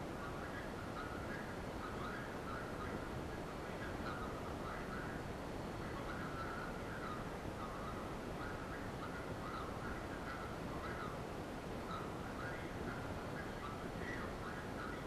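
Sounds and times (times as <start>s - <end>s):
faint indistinct sounds: 0.0s - 15.0s
videotape hiss: 0.0s - 15.0s.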